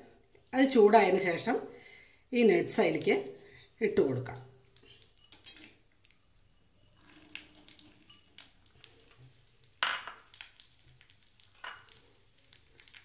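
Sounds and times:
nuts sizzling in hot ghee: 4.6 - 13.0.

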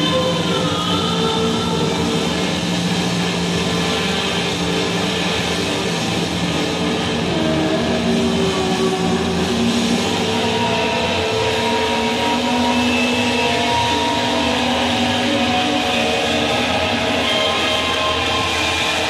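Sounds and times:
distorted electric guitar drone: 0.0 - 19.0.

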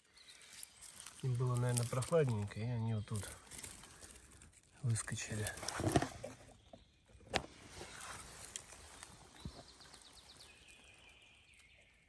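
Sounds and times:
footsteps rustling on dry leaves: 0.1 - 2.5, 7.6 - 11.3.

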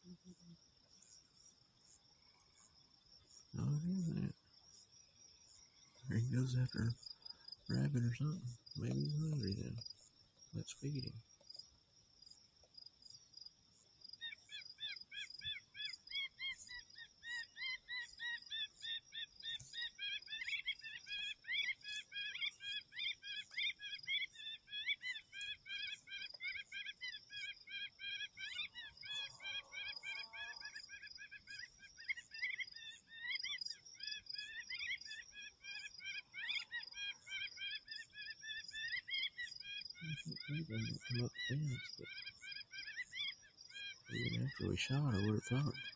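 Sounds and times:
high insect drone: 0.0 - 45.9
high squealing bird chirps: 34.4 - 45.9.

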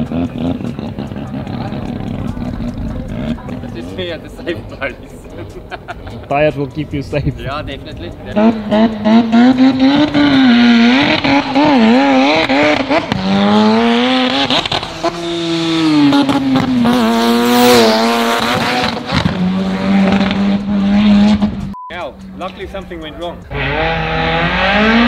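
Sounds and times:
race car engine revving hard: 0.0 - 3.7, 8.2 - 21.8, 23.4 - 25.0.

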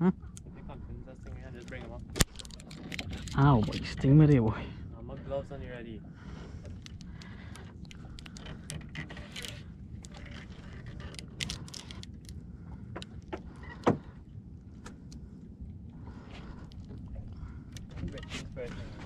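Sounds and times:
steady low rumble: 0.0 - 19.0
fishing gear clicking and rattling: 1.3 - 4.4, 6.6 - 15.2, 16.3 - 19.0.

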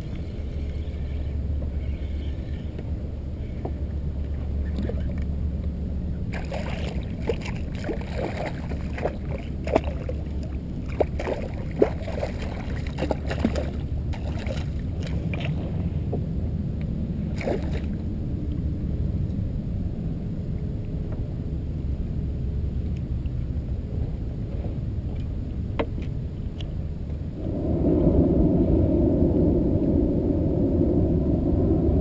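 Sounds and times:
wind rumble on microphone: 0.0 - 32.0
fish thrashing and splashing: 6.3 - 15.6
water lapping against kayak hull: 6.3 - 16.0.

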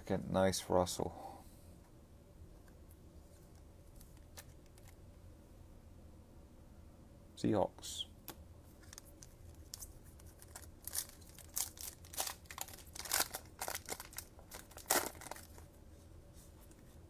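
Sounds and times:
plastic packaging crinkling: 8.8 - 15.7.

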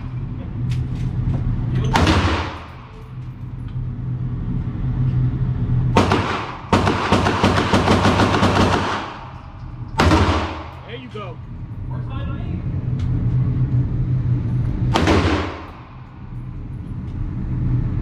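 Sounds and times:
rifle shots echoing indoors: 1.9 - 2.9, 6.0 - 10.8, 14.9 - 16.0.

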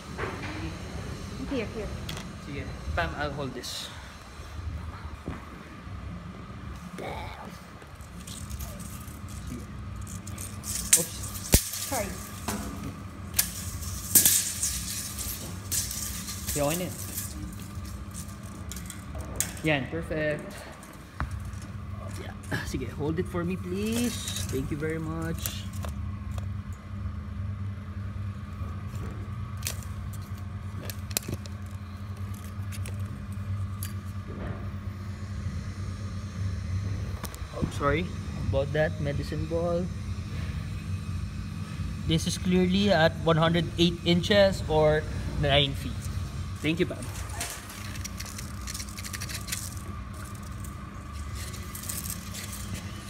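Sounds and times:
low mechanical hum: 0.0 - 53.0
tape measure clicks and rattles: 8.0 - 19.7, 23.8 - 26.0, 46.6 - 53.0
handling clicks and rattles: 46.0 - 53.0.

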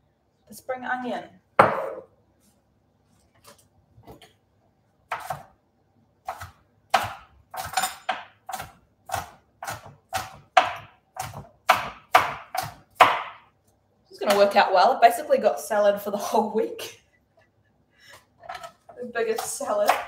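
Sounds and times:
knife chopping on cutting board: 1.6 - 2.0, 5.1 - 5.5, 6.2 - 13.4, 19.3 - 20.0.

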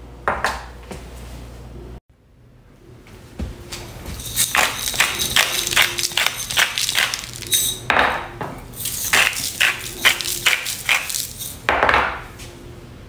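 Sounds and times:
seasoning shaken from glass jar: 4.1 - 7.8, 8.8 - 11.6.

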